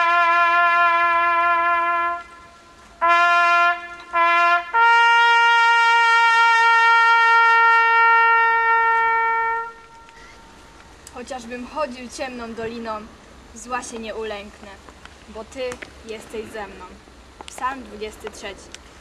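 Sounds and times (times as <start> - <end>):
solo trumpet call: 0.0 - 10.6.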